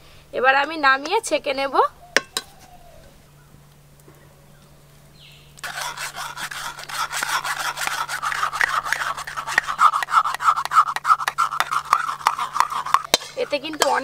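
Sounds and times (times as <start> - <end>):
batter scraped through mesh strainer: 5.6 - 14.0.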